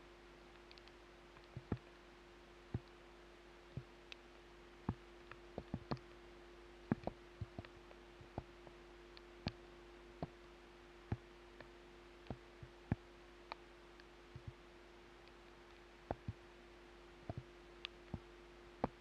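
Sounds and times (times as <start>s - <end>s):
faint hum: 0.0s - 19.0s.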